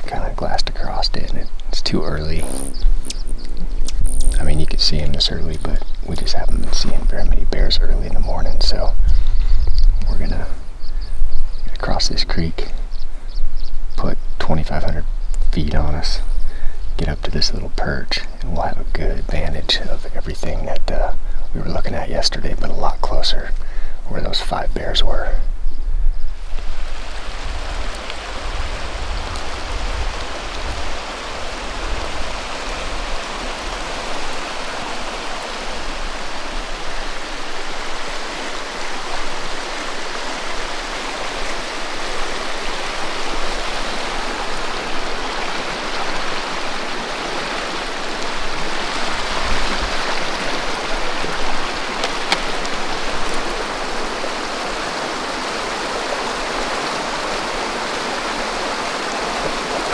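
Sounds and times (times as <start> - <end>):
creek rushing over rocks: 0.0 - 3.4, 26.4 - 59.9.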